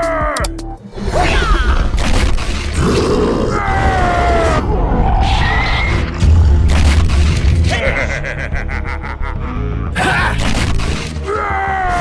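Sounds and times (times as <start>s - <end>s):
cartoon grunting and groaning: 7.6s - 8.6s.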